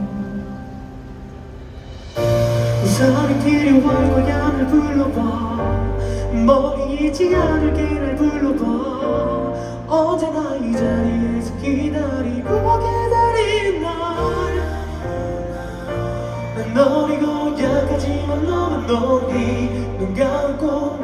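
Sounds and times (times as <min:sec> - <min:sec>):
band playing: 0:00.0 - 0:21.0
man singing into a microphone: 0:02.8 - 0:21.0.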